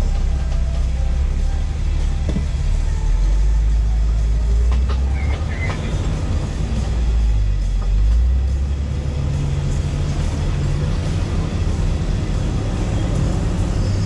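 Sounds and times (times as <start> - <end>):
engine running at low revs: 0.0 - 14.0.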